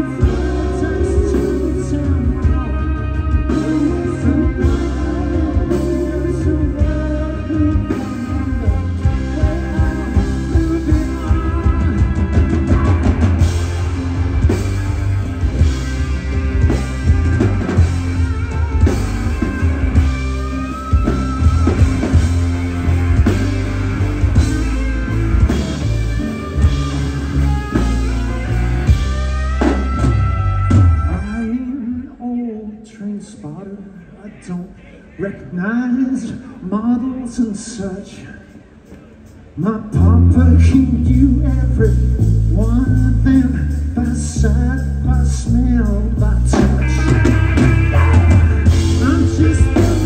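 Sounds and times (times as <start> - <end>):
drum kit: 0.0 - 31.5, 39.2 - 50.0
electric guitars: 0.0 - 31.9, 38.9 - 50.0
heavy bass: 0.0 - 32.1, 39.4 - 50.0.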